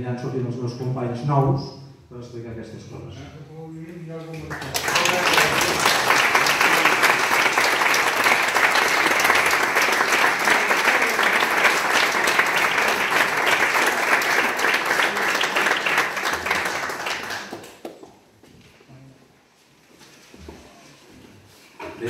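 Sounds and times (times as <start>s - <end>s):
audience applauding: 4.4s - 18.1s.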